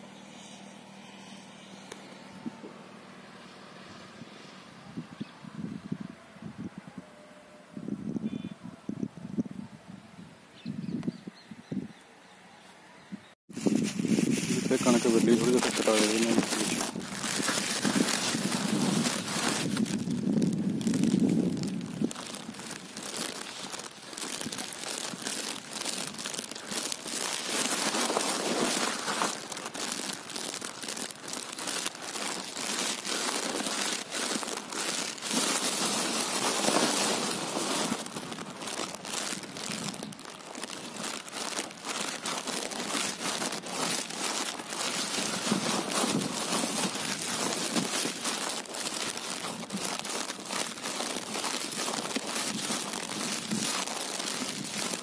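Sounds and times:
dense crackle of small clicks: 0:13.8 - 0:55.0.

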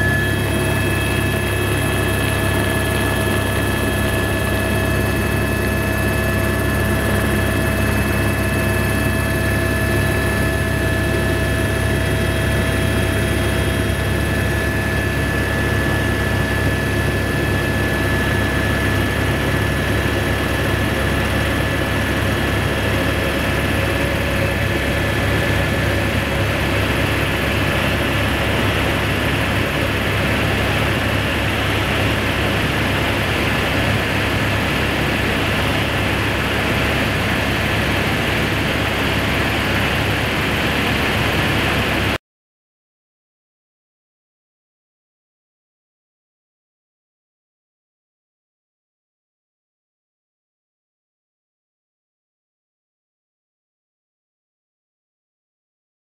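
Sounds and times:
high even whine: 0:00.0 - 0:42.1
helicopter engine and rotor drone: 0:00.0 - 0:42.2.

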